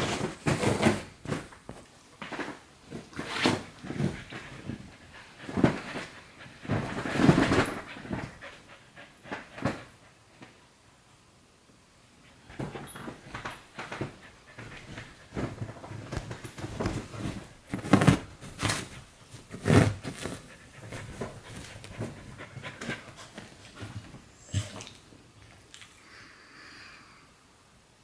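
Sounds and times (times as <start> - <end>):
clothes rustling: 12.6 - 24.2
dog panting: 20.2 - 24.8.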